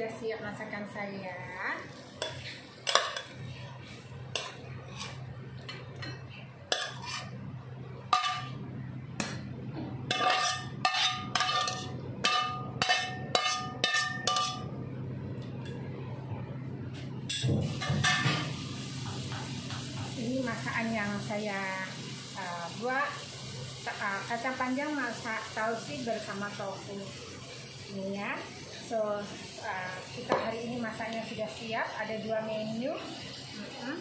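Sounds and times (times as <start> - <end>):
steady low hum: 0.0 - 18.8
metal utensils scraping a wok: 2.0 - 5.3, 5.9 - 7.4, 8.1 - 8.6, 10.1 - 14.7.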